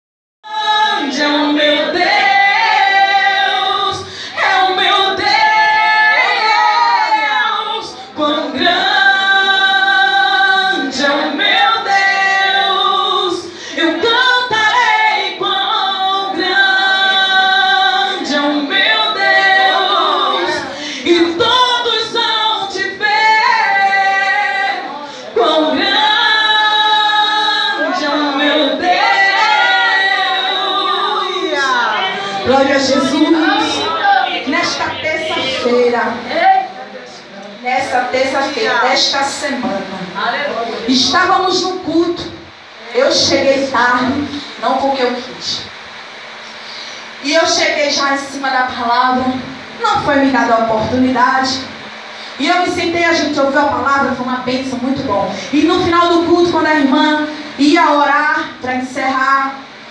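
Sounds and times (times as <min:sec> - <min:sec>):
woman singing a hymn: 0:00.5 - 0:36.7, 0:52.4 - 0:59.7.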